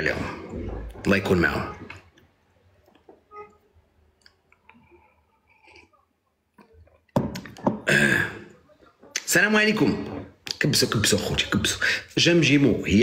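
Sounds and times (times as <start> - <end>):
faint clicks and taps: 1.9 - 3.3.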